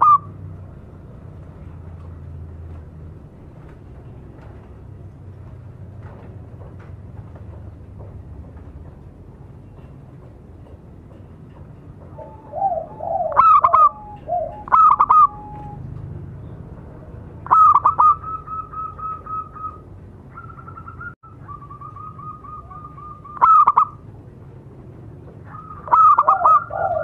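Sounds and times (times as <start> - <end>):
dove cooing: 0.0 - 0.3, 12.1 - 16.0, 17.4 - 24.0, 25.4 - 27.0.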